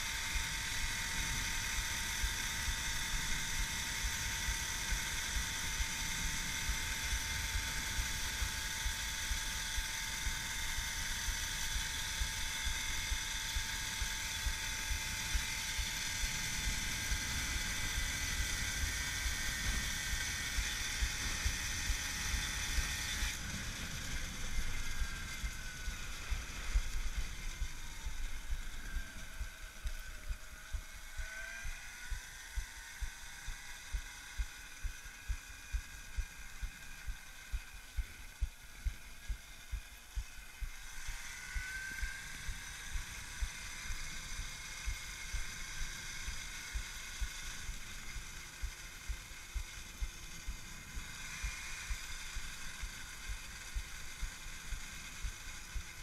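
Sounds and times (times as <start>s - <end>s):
electric motor whine: 0.0s - 56.0s.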